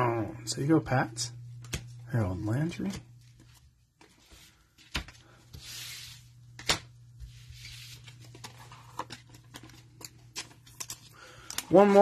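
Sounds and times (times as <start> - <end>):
cards tapping and clicking: 1.6 - 2.0
cards rustling: 1.6 - 12.0.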